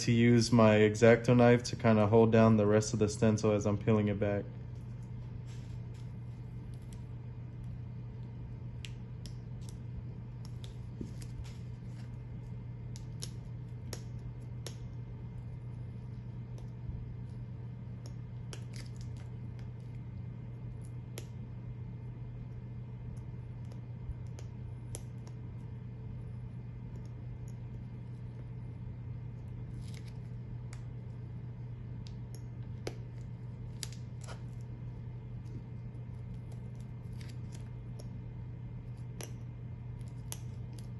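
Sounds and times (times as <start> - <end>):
steady low hum: 0.0 - 40.9
paper peeling with faint crackles: 4.7 - 14.9, 18.4 - 20.0, 29.4 - 31.1, 32.6 - 38.2
paper peeling crackles: 29.6 - 30.8, 35.4 - 37.8.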